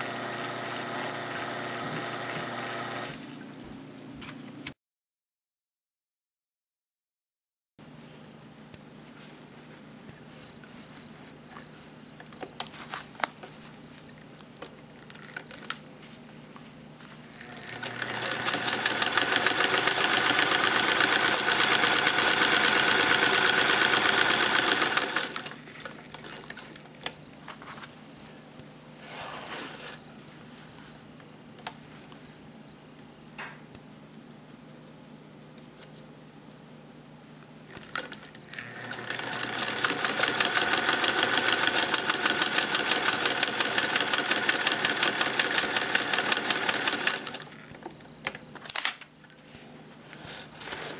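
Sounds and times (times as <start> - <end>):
sewing machine stitching: 0.0 - 3.2, 17.4 - 25.6, 37.7 - 47.5.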